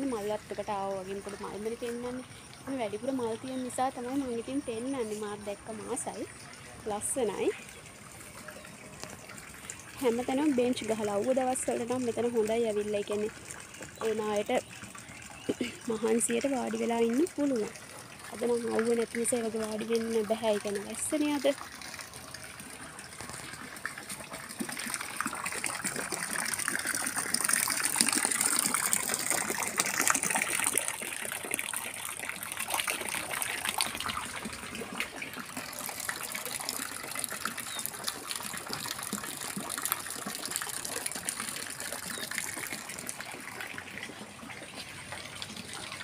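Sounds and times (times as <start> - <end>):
water gushing and splashing: 0.0 - 46.0.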